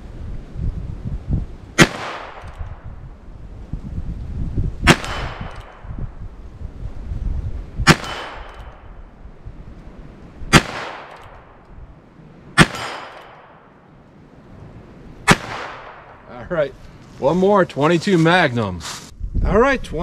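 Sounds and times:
revolver shots: 0:04.8 - 0:06.0, 0:07.8 - 0:09.0, 0:10.5 - 0:11.6, 0:15.2 - 0:16.2.

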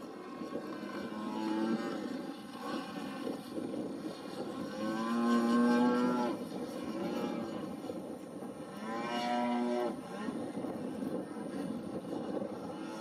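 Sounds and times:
model plane engine and propeller: 0:00.0 - 0:13.0.

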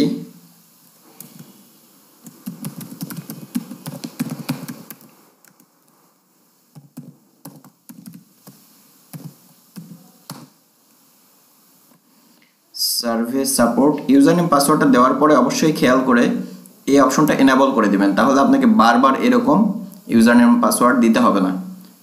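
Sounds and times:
keyboard typing: 0:02.2 - 0:05.9, 0:06.7 - 0:10.5.

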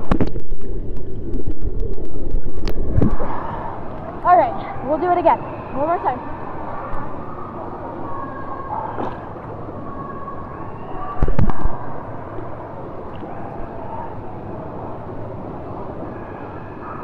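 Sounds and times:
water sloshing and splashing: 0:00.0 - 0:04.7, 0:11.1 - 0:12.1.

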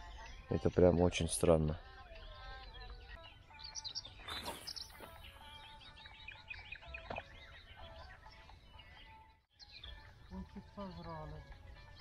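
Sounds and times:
songbirds singing: 0:00.0 - 0:12.0
brief swish: 0:04.2 - 0:05.2.

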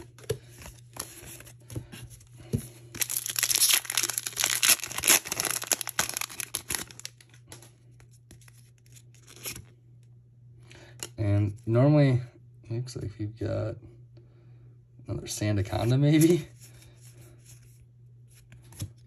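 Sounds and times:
foil wrapper tearing and crinkling: 0:03.0 - 0:07.4
cards being flipped: 0:18.3 - 0:19.0.

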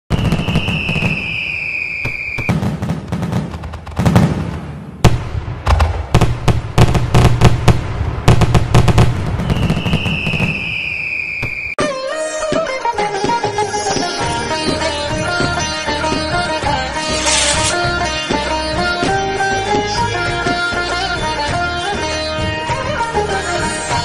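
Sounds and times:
firework whistle: 0:00.1 - 0:02.8, 0:09.4 - 0:12.6, 0:13.5 - 0:14.8, 0:16.9 - 0:17.9
firework bangs and crackling: 0:00.1 - 0:11.8
instrumental music: 0:11.8 - 0:24.0.

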